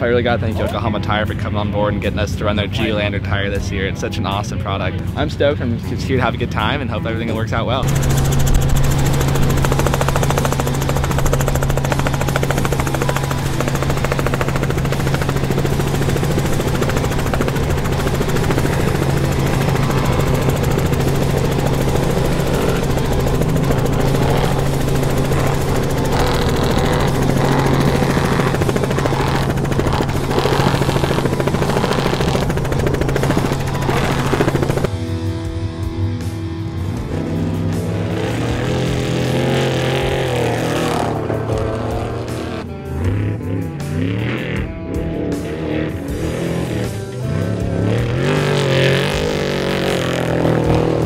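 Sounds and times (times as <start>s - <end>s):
helicopter rotor hum: 7.0s - 42.8s, 43.7s - 51.0s.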